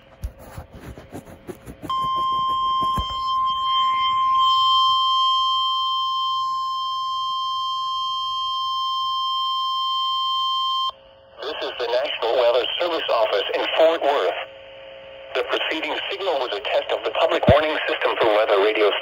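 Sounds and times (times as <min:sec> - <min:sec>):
steady warning alarm tone: 0:01.4 - 0:10.9.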